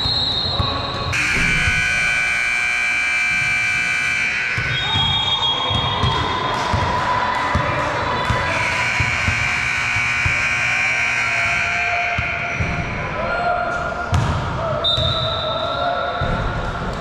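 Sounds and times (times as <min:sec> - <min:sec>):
basketball bouncing on gym floor: 0:00.0 - 0:02.4, 0:14.1 - 0:14.4.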